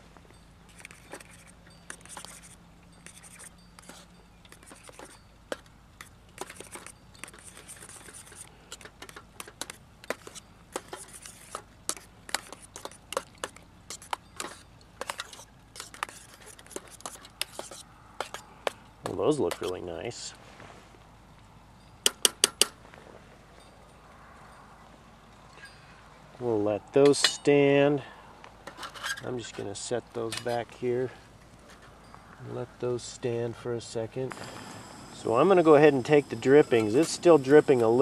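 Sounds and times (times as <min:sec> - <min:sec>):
spoon scraping a metal pot: 0:00.7 - 0:18.5.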